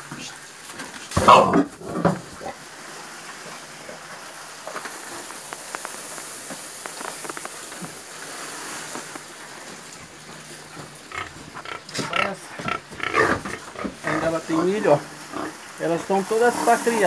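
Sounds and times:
pig chewing corn: 3.4 - 15.6.

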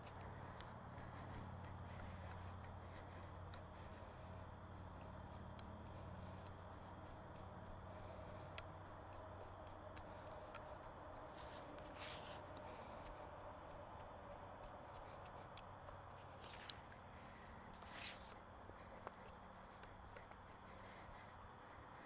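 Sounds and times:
crickets chirping: 0.0 - 22.0
soft scuffs: 17.8 - 18.4.

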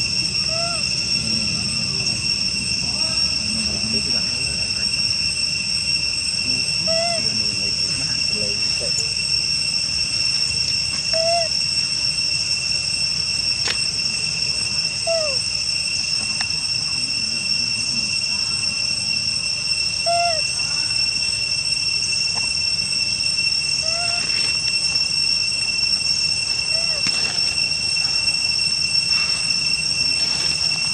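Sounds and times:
high-pitched insect drone: 0.0 - 30.9
rising-and-falling chirping call: 0.4 - 1.5, 11.0 - 11.6, 19.9 - 20.6.

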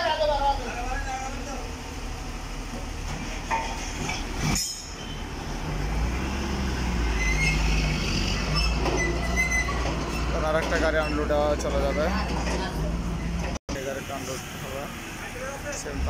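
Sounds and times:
crane engine droning: 0.0 - 10.3
short high squeals: 7.0 - 10.4.

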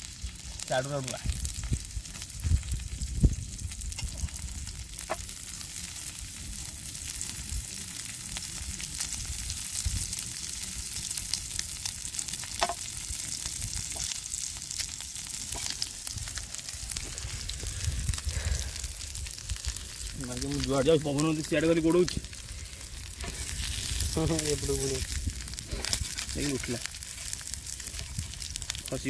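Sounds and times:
food sizzling in hot oil: 0.0 - 29.0.

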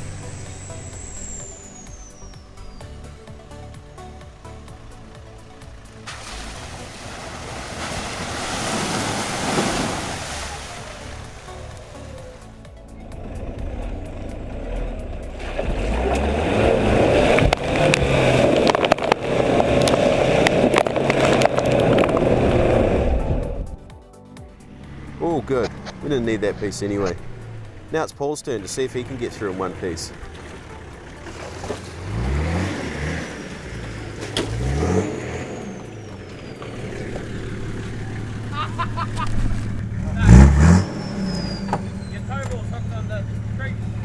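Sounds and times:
faint high whistle: 0.0 - 3.1, 40.8 - 42.3
truck engine revving: 0.0 - 23.8, 24.6 - 44.0
mud and water splashing: 5.6 - 12.5, 15.3 - 23.0, 28.6 - 41.4.

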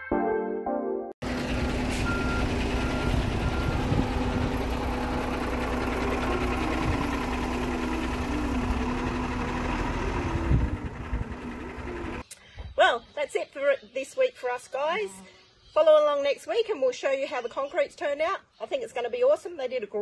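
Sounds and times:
diesel truck engine running: 1.2 - 12.2.

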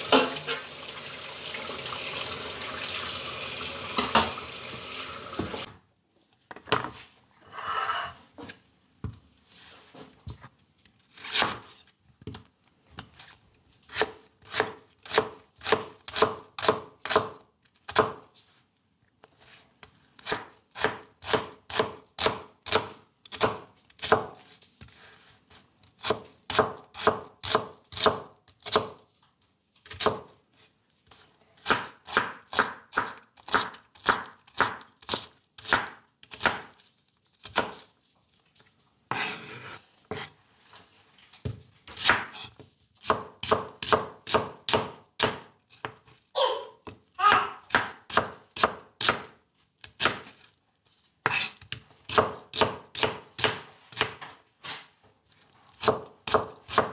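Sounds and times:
blade scraping across board: 7.4 - 8.2, 39.1 - 40.4
knife chopping on cutting board: 13.9 - 18.2, 20.2 - 24.4, 26.0 - 29.0, 31.6 - 36.8, 39.1 - 40.3, 41.4 - 46.0, 46.8 - 49.3, 49.9 - 50.4, 51.2 - 54.2, 55.8 - 56.9.

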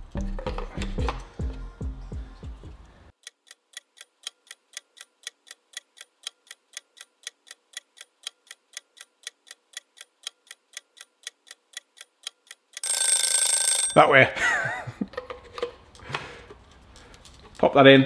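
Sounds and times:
guitar background music: 0.0 - 2.7
clock ticking: 3.1 - 14.0.

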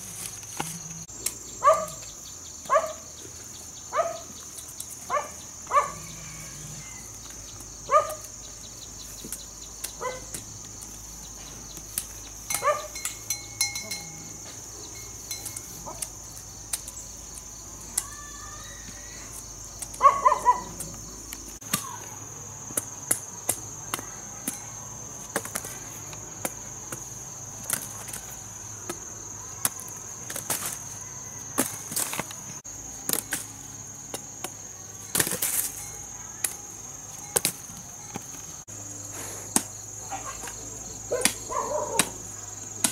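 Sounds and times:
insects droning: 0.0 - 42.9
dog barking: 1.6 - 2.0, 2.7 - 3.0, 3.9 - 4.3, 5.1 - 6.1, 7.9 - 8.2, 10.0 - 10.3, 12.6 - 13.0, 20.0 - 20.8, 41.1 - 42.2.

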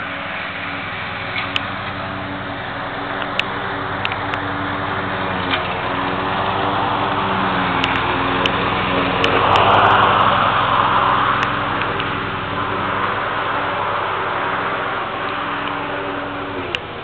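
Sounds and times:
engine running: 0.0 - 17.0
rush of noise: 5.7 - 17.0
sharp clicks: 7.8 - 8.6.

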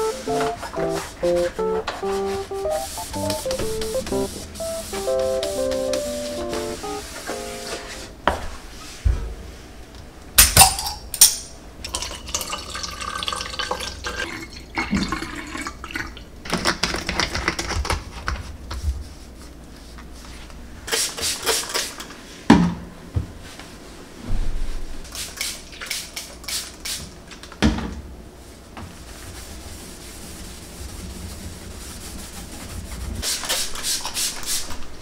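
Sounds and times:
cloth rubbing on tiles: 0.0 - 9.1, 28.4 - 34.8
liquid pouring into a bottle: 11.9 - 16.2.

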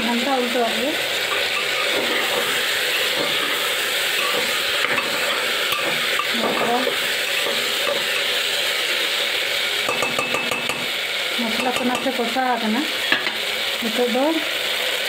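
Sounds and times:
vegetables sizzling in oil: 0.0 - 15.0
metal spatula scraping pot: 1.2 - 8.4.

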